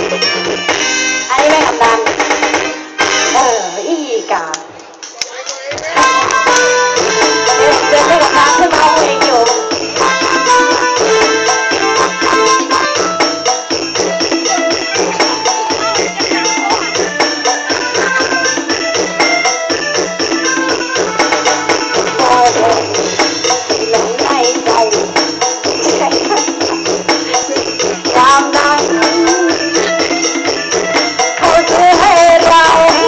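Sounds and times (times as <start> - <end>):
country music with fast beat: 0.0 - 4.3, 4.9 - 33.0
person singing: 21.9 - 25.2, 25.8 - 30.5.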